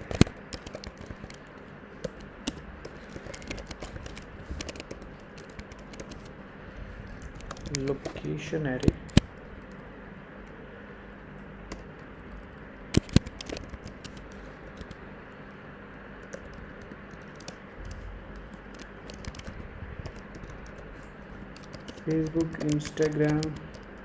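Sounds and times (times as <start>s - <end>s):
keyboard key clicks: 2.0s - 6.3s, 12.9s - 15.0s, 21.6s - 24.0s.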